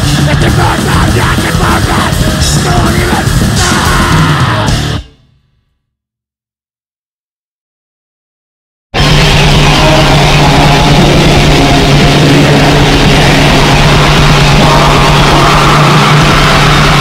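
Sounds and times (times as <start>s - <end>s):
distorted punk music: 0.0s - 5.4s, 9.0s - 17.0s.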